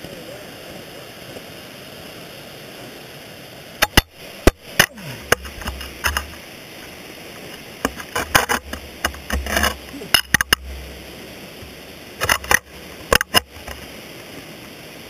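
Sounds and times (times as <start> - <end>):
faint hiss: 0.0 - 15.0
ice axe striking and scraping rock: 7.8 - 10.8.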